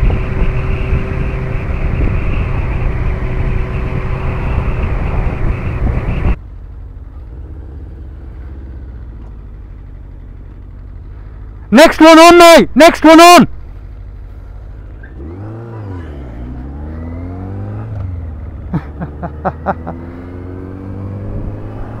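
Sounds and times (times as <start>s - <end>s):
heavy wind noise: 0.0s - 6.4s
low engine hum: 0.0s - 11.8s, 13.5s - 22.0s
motorcycle engine: 0.0s - 22.0s.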